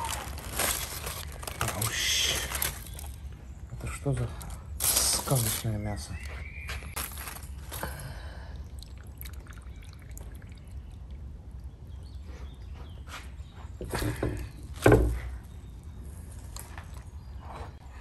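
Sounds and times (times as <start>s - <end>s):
foil crinkling: 0.0s - 3.3s, 4.4s - 5.8s, 6.9s - 8.0s
juice dripping: 6.9s - 12.0s.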